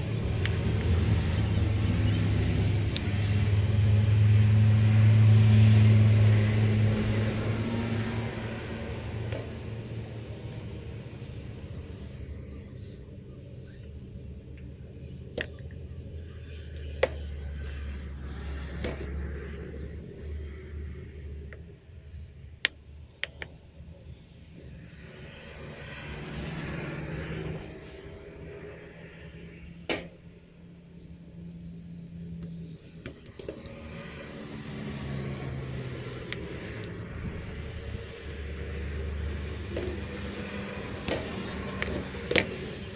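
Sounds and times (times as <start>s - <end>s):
ratchet wrench clicks and knocks: 39.7s - 42.9s.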